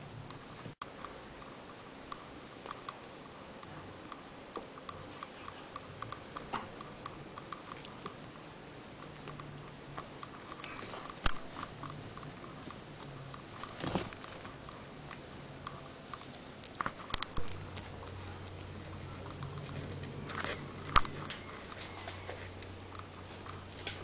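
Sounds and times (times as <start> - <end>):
kittens rustling on blankets: 16.2 - 24.0.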